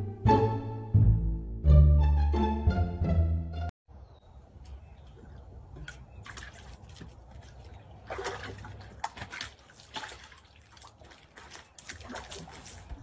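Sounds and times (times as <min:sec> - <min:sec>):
water sloshing and splashing: 0:04.6 - 0:13.0
dog lapping water: 0:05.2 - 0:13.0.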